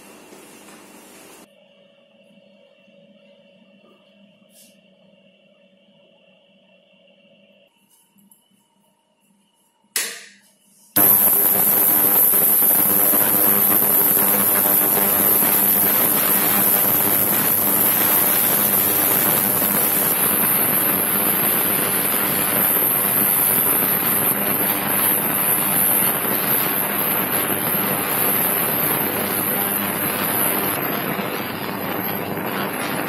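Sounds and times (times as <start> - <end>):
ultrasonic cleaner crackling hiss: 0.0 - 1.5, 11.0 - 33.0
high-pitched whine: 11.0 - 33.0.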